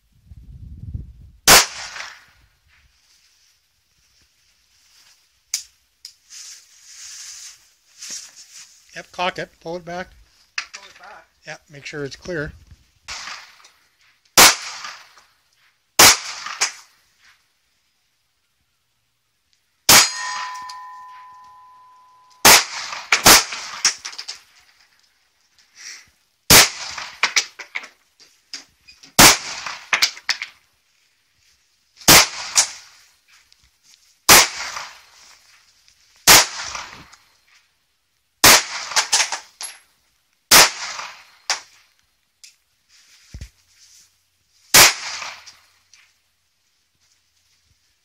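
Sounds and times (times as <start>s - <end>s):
pistol shots with echo: 1.5s - 2.2s, 14.4s - 15.1s, 16.0s - 16.8s, 19.9s - 24.0s, 26.5s - 27.3s, 29.2s - 30.0s, 38.4s - 39.3s.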